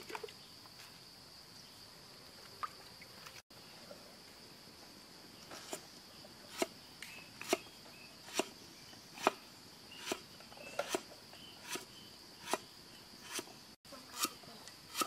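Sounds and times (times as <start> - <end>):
crickets droning: 0.0 - 15.0
cleaver chopping on wooden board: 8.3 - 8.5, 9.2 - 9.4, 10.0 - 13.5, 14.2 - 15.0.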